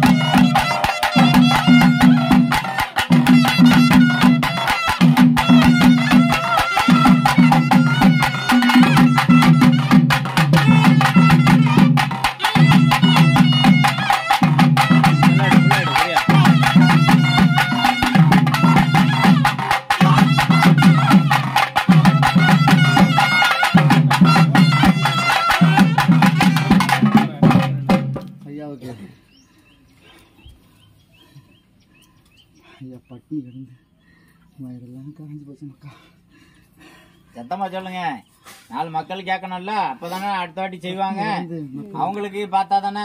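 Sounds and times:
fast drumming: 0.0 - 28.4.

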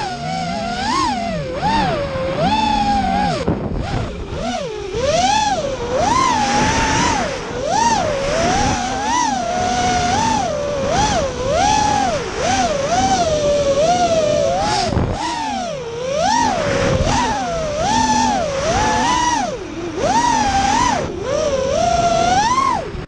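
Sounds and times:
drone motors whining: 0.0 - 23.0.

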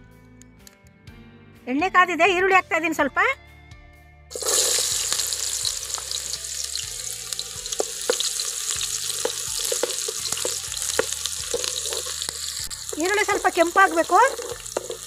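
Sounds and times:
onions sizzling in oil: 4.3 - 15.0
wooden spatula scraping a pot: 7.8 - 15.0.

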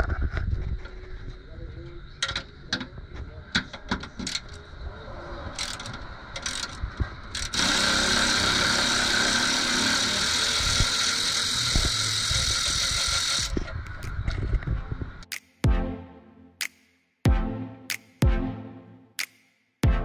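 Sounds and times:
power ratchet running: 5.6 - 13.6.

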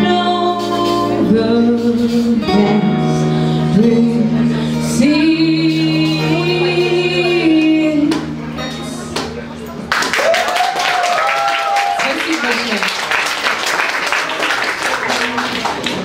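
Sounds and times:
woman singing long notes: 0.0 - 8.3
acoustic and electric guitar: 0.0 - 9.9.

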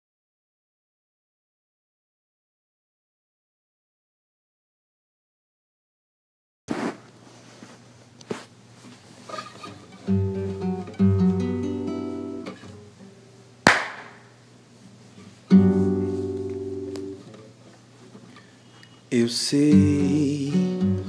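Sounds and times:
classical guitar chords: 9.6 - 13.6, 15.4 - 17.6, 19.6 - 21.0
sharp percussive hit: 13.7 - 14.3.

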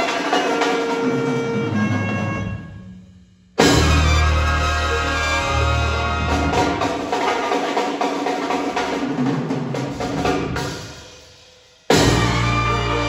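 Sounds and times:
jazz big band playing: 0.0 - 7.7, 11.9 - 13.0
drum strokes: 0.0 - 11.3, 11.9 - 13.0.

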